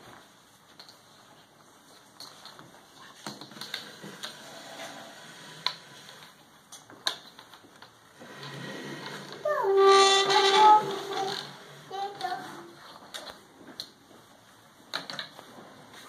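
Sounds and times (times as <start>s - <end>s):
child's voice: 9.4s - 12.8s.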